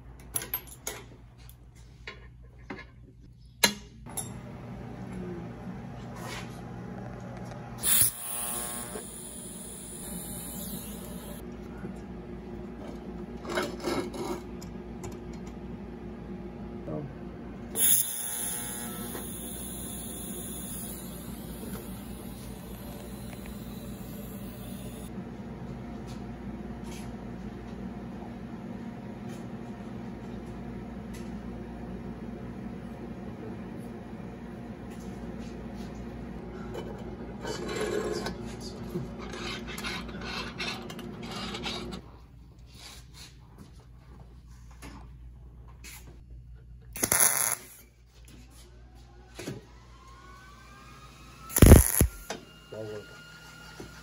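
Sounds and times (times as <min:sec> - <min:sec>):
steady low hum: 0:04.1 - 0:30.1, 0:51.5 - 0:52.2
welding arc buzzing: 0:07.0 - 0:11.4, 0:17.7 - 0:25.1, 0:47.0 - 0:47.9, 0:51.5 - 0:52.3.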